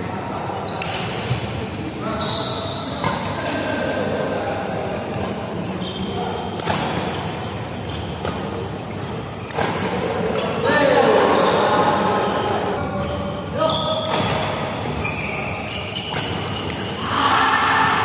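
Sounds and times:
din of voices in echoing hall: 0:00.0 - 0:07.7, 0:08.8 - 0:18.0
rackets hitting shuttlecock: 0:06.5 - 0:10.6, 0:14.0 - 0:15.1, 0:16.0 - 0:17.0.

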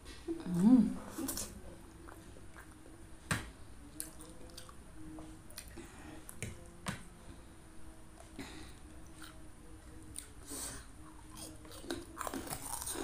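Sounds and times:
chewing noodles: 0:03.9 - 0:04.8, 0:10.1 - 0:13.0.

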